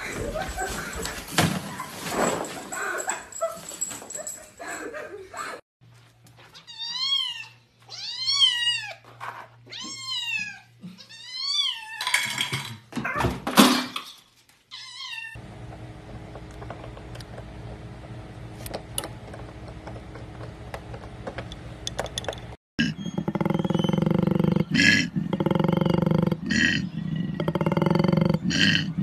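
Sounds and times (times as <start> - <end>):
low hum with faint ticks: 15.4 - 22.5.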